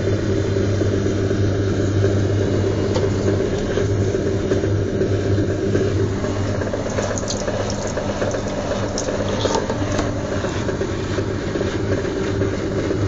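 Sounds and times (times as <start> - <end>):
washing machine pump hum: 0.0 - 13.0
water gushing from drain hose: 6.1 - 10.6.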